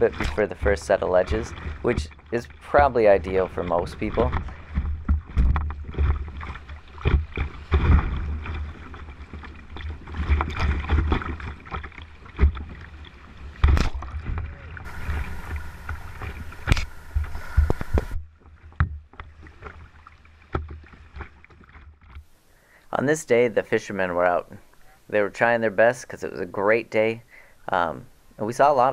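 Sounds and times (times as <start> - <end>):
waves breaking over bow: 0.0 - 21.8
paddle strokes slapping water: 0.0 - 22.3
river water rushing and splashing: 6.2 - 18.2
low rumble: 14.0 - 18.8.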